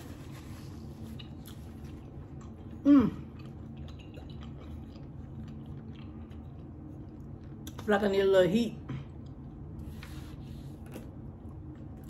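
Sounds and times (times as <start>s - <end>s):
person chewing food: 0.0s - 7.8s.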